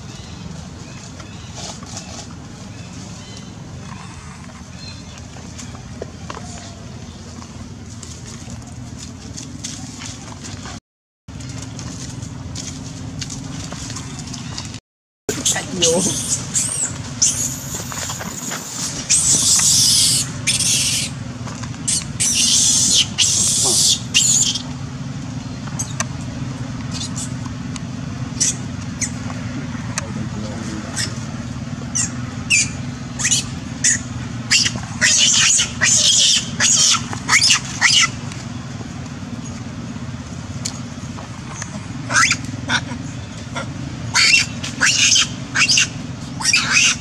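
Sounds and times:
monkey screaming: 15.4s - 17.8s, 18.4s - 21.2s, 21.8s - 24.7s, 28.4s - 29.2s, 30.9s - 31.2s, 31.9s - 38.2s, 42.0s - 47.0s.

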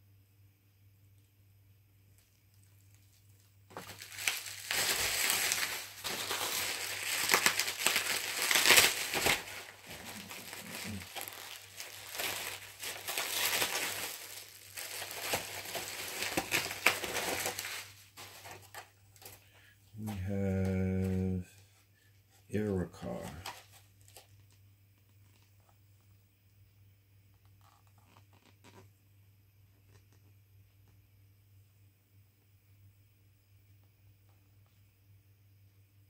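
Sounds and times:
bubble wrap crinkling: 2.1s - 21.8s, 23.0s - 25.8s, 27.4s - 28.9s.

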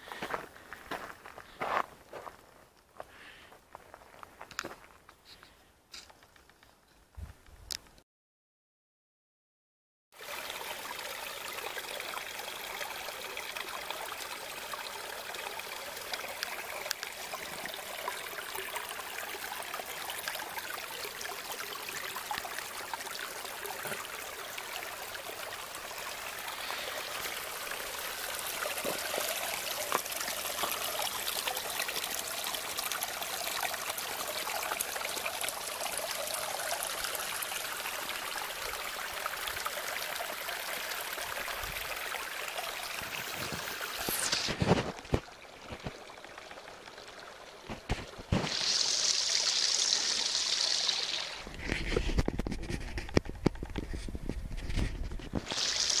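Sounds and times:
stream trickling over rocks: 10.2s - 56.0s.

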